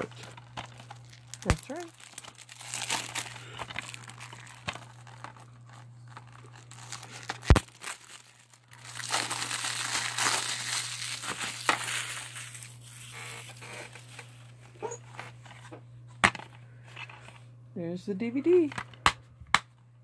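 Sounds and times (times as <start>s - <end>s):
plastic shrink wrap crinkling: 0.0s - 15.3s.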